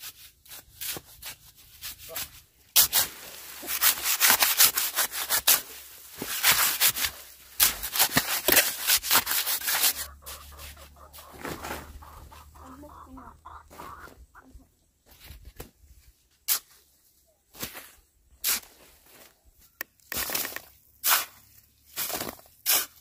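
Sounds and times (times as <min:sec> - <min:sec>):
rough scraping strokes: 0:00.0 - 0:12.4
chicken clucking: 0:09.8 - 0:14.9.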